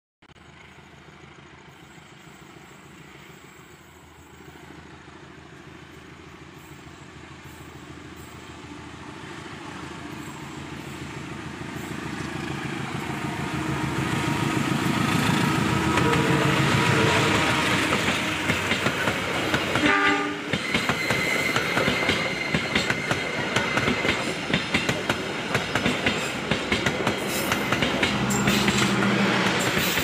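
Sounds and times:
locomotive engine drone: 0.3s - 30.0s.

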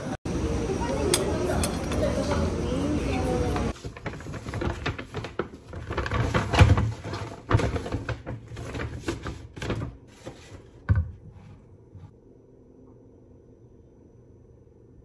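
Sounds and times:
paper bag rustling: 3.6s - 12.1s.

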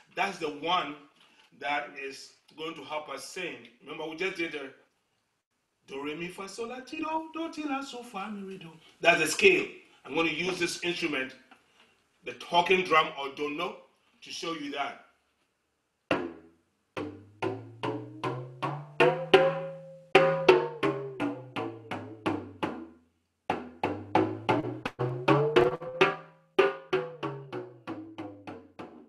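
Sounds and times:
talking drum playing a scale: 17.0s - 22.9s, 23.5s - 29.0s.

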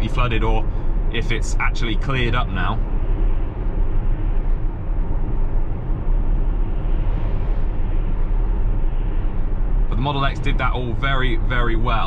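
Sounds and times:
tyre and road noise: 0.0s - 12.0s
vehicle passing: 0.0s - 12.0s.

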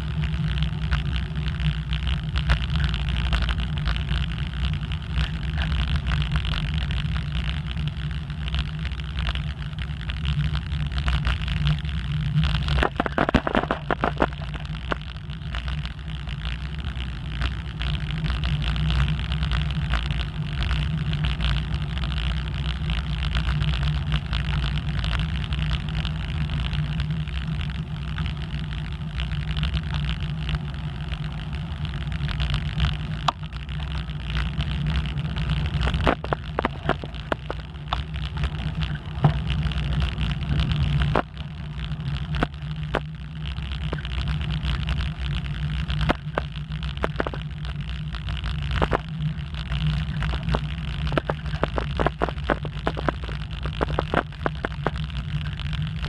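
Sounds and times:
bike rattling over bumps: 0.0s - 8.4s, 10.6s - 26.6s, 27.8s - 55.9s
bicycle tyre road noise: 0.0s - 56.0s
wind on microphone: 11.5s - 15.6s.

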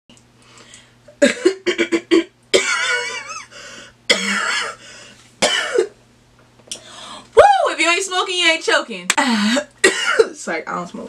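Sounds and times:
woman choking strained sounds: 1.1s - 3.4s
woman coughing: 1.2s - 3.5s, 4.1s - 4.8s, 5.4s - 6.0s, 9.2s - 10.4s.

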